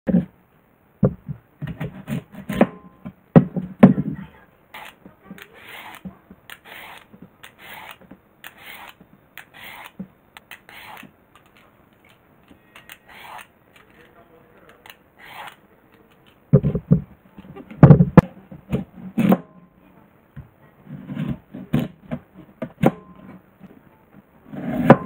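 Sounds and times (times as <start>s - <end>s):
peeler scraping radish: 4.7s - 14.1s, 14.7s - 16.4s.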